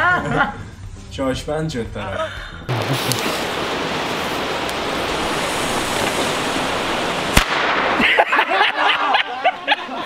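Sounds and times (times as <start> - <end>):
firework hissing: 2.7 - 9.2.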